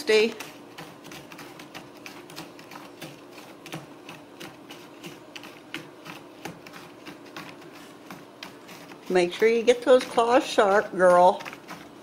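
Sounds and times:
cat claws scratching cardboard: 0.1s - 12.0s.

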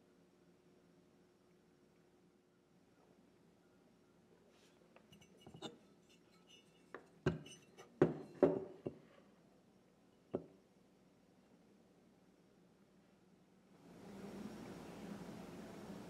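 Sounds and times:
metal plane knocking on workbench: 6.9s - 9.0s.

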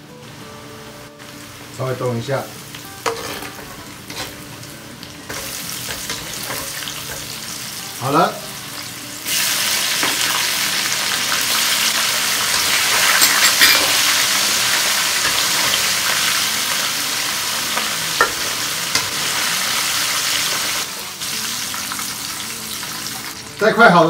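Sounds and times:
food sizzling in hot oil: 0.6s - 24.0s.

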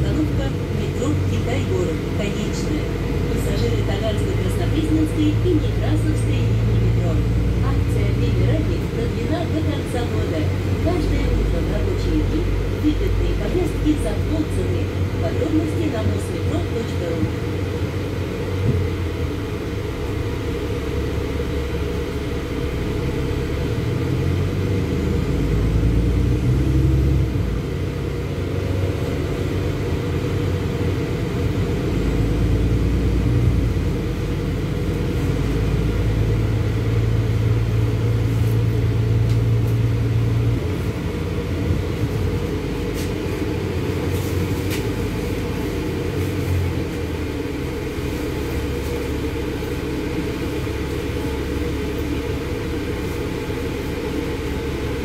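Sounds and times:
bus engine and road rumble: 0.0s - 55.0s
steady low hum: 0.0s - 55.0s.

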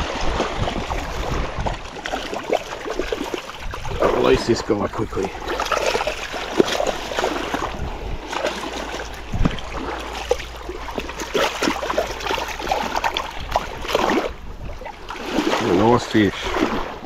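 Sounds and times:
shallow water splashing: 0.0s - 17.0s.

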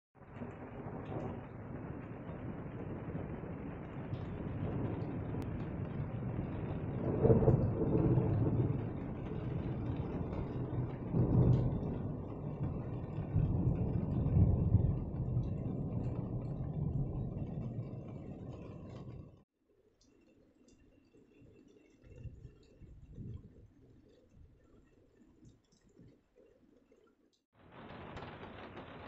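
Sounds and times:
rolling thunder: 0.2s - 19.4s, 27.6s - 29.0s.

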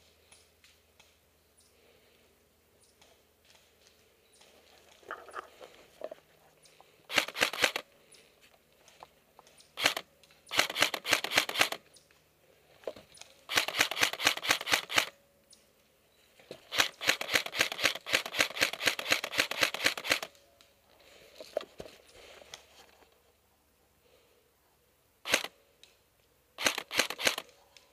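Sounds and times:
airsoft rifle firing: 7.1s - 7.8s, 9.8s - 11.8s, 13.5s - 15.1s, 16.7s - 20.3s, 26.6s - 27.5s.

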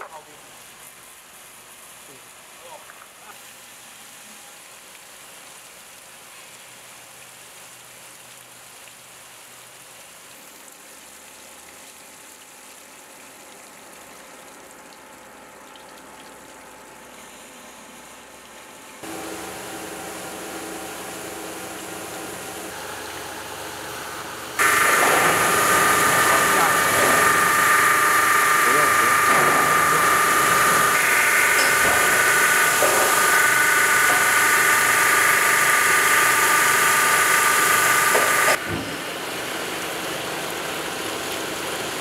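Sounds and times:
coolant water rushing: 18.2s - 42.0s
machine hum: 19.0s - 42.0s
spindles whining grinding ceramic: 24.6s - 38.6s.

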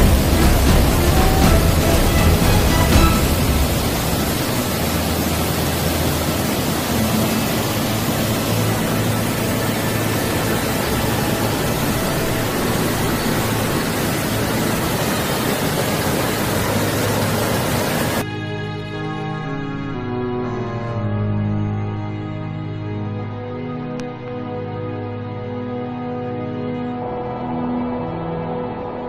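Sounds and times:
stream rushing in flood: 0.0s - 18.3s.

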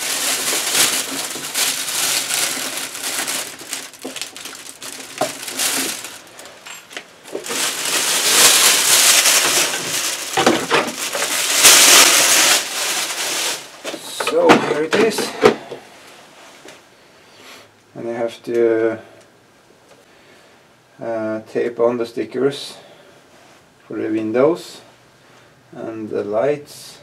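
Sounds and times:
plastic bag crinkling: 0.0s - 15.2s.

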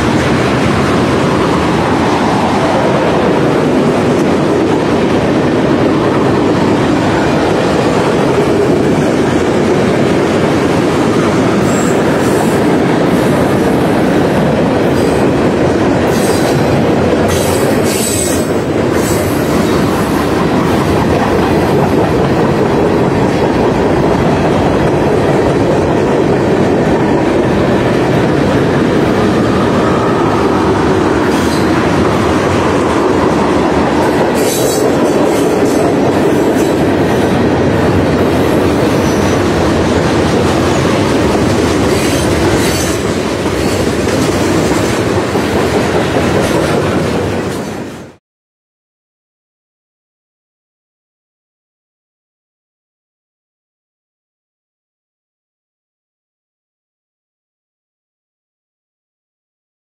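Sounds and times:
clickety-clack over rail joints: 0.0s - 29.3s, 31.1s - 48.2s
freight train wheels rumbling: 0.0s - 48.2s.

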